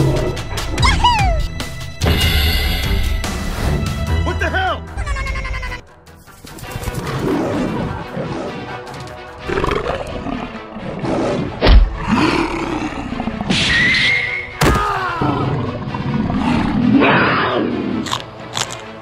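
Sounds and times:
background music: 0:00.0 - 0:19.0
big cat roars and growls: 0:06.8 - 0:13.8, 0:14.9 - 0:18.3.

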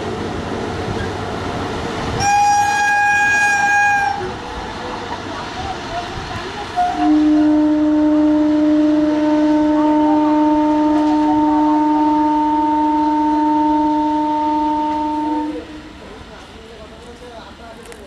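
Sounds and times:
locomotive air horn blast: 0:02.2 - 0:04.4, 0:06.8 - 0:16.0.

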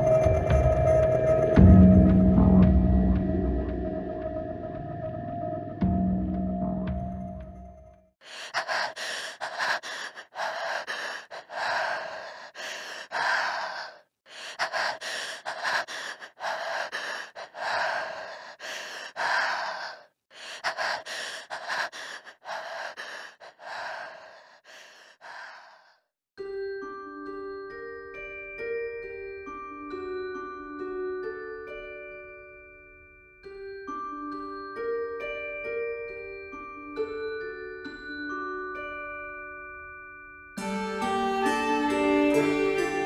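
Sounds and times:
soft mallet-like music notes: 0:00.0 - 0:08.0, 0:26.4 - 0:43.0
heavy panting breaths: 0:08.2 - 0:26.1.

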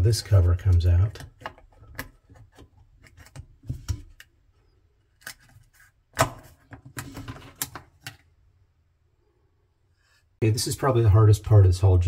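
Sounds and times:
plastic parts clicking and knocking: 0:00.7 - 0:04.4.

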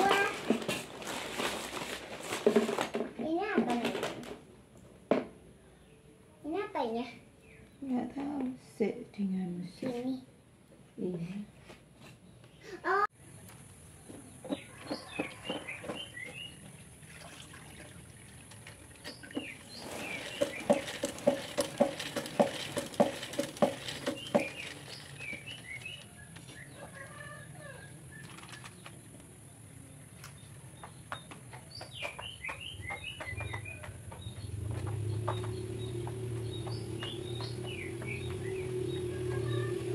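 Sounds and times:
small birds chirping: 0:12.0 - 0:16.9, 0:18.1 - 0:39.9
spin mop whirring: 0:19.1 - 0:26.1.

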